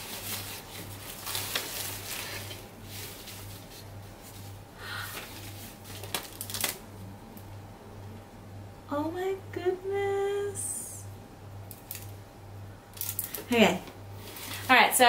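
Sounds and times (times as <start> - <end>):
plastic wrapping rustling: 0.0 - 6.8, 13.0 - 13.6, 14.2 - 14.9.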